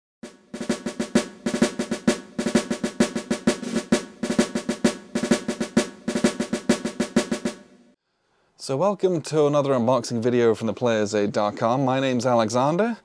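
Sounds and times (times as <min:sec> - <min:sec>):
snare drum cadence: 0:00.2 - 0:07.9.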